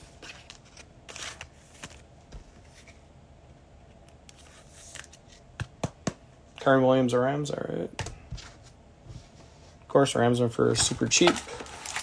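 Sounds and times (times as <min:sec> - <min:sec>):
trading cards sliding and flicking: 0:00.2 - 0:02.0, 0:04.3 - 0:05.4.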